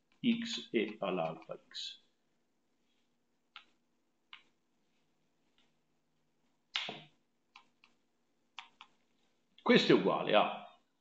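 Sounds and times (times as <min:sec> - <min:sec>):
stylus tapping on tablet screen: 0:03.5 - 0:04.6, 0:06.7 - 0:09.1.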